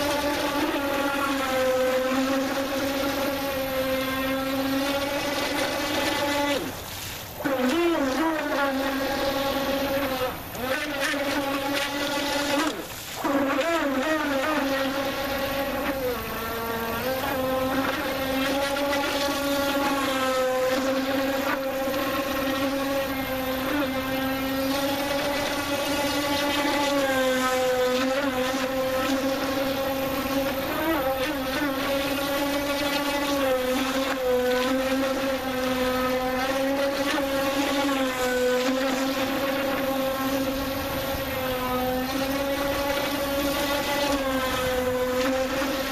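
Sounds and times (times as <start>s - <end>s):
electric motor high whine: 0.0s - 45.9s.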